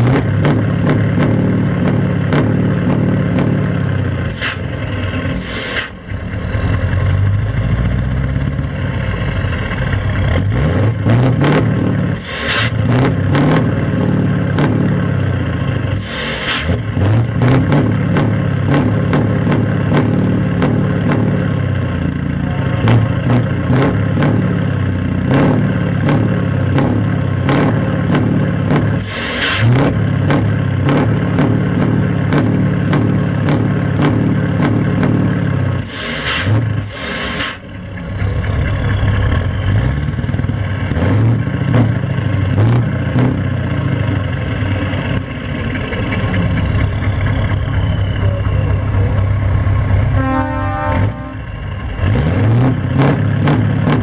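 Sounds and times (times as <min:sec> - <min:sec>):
diesel engine revving: 0:00.0 - 0:54.0
short hisses: 0:05.4 - 0:06.0, 0:12.2 - 0:12.8, 0:16.0 - 0:16.7, 0:35.9 - 0:37.6.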